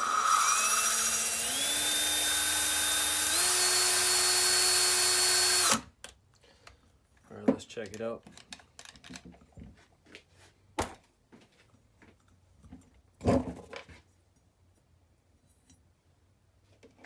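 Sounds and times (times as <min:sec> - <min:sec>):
handling small parts and tools: 0:06.0 - 0:10.2, 0:12.1 - 0:16.0.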